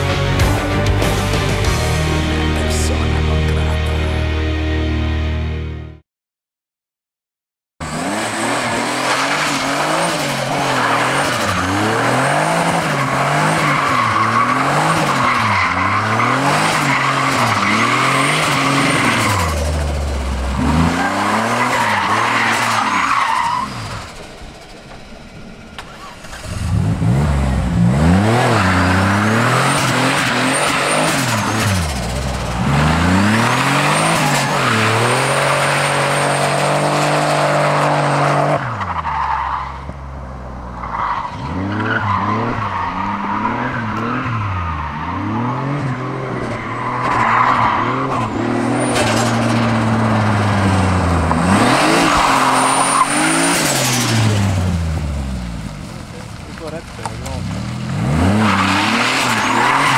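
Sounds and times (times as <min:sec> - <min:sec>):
car engine revving: 0:07.8 - 0:59.9
tyre squeal: 0:51.6 - 0:54.4.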